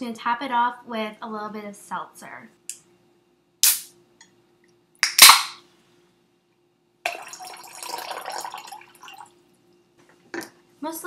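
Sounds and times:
seltzer pouring and fizzing: 0:07.1 - 0:09.4.

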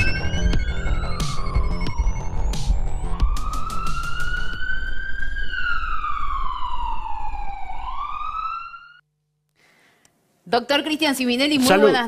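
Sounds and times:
low pulsing electronic music: 0:00.0 - 0:07.6
siren wailing: 0:00.0 - 0:09.0.

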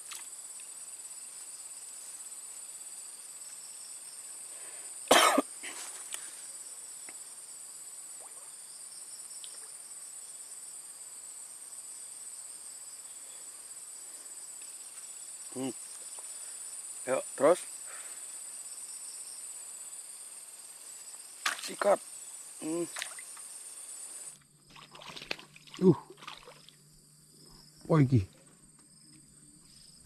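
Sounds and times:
insects chirring: 0:00.0 - 0:30.0
loud cough: 0:05.1 - 0:05.8.

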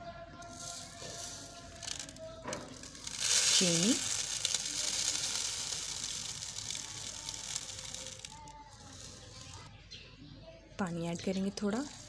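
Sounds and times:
sugar pouring into blender jar: 0:00.5 - 0:09.6.

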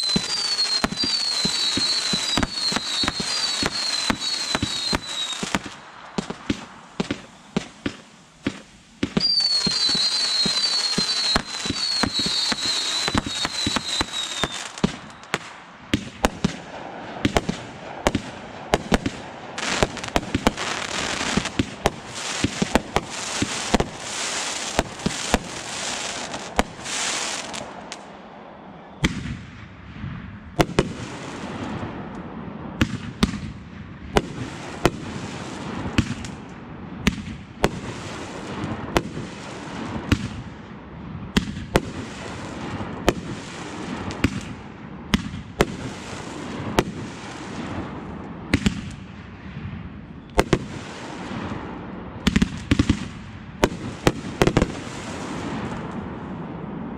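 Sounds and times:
falling firework whistles: 0:00.0 - 0:16.6, 0:18.9 - 0:29.4
fireworks bangs and pops: 0:00.0 - 0:28.2, 0:29.0 - 0:56.9
crackling hiss: 0:00.0 - 0:29.8.

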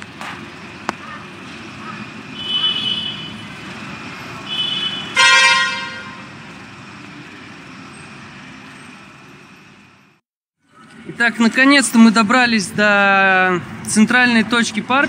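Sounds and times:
traffic rumble: 0:00.0 - 0:15.0
vehicle horns beeping: 0:02.3 - 0:03.6, 0:04.4 - 0:06.4.

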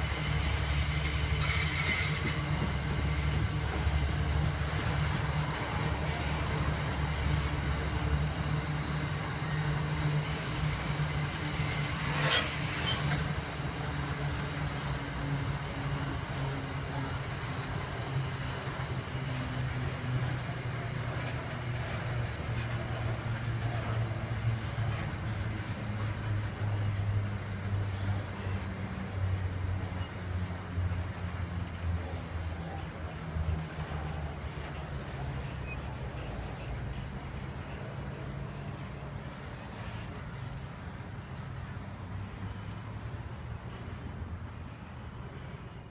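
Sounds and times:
train wagons rolling on rails: 0:00.0 - 0:45.9.

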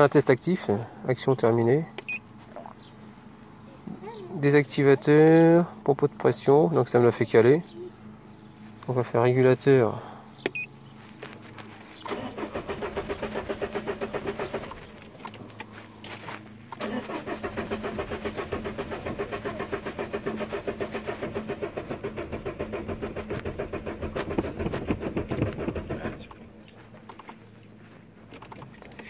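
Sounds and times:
diesel engine cranking on starter: 0:12.0 - 0:15.5, 0:16.7 - 0:27.4.

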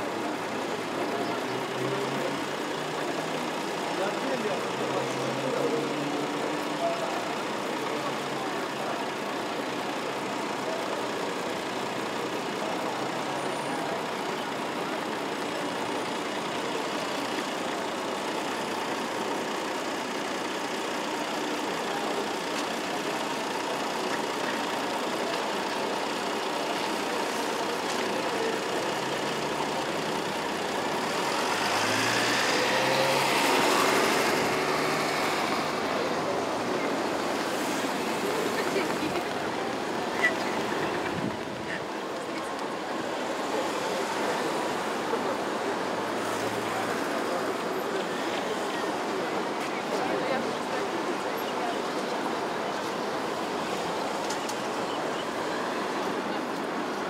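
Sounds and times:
traffic hum: 0:00.0 - 0:57.0.

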